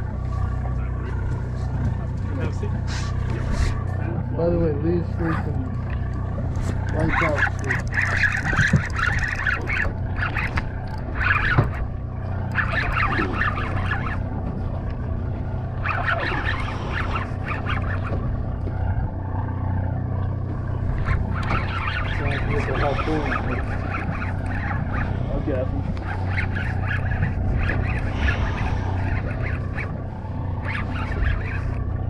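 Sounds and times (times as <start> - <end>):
boat engine droning: 0.0 - 32.0
higher-pitched calls: 12.5 - 14.3.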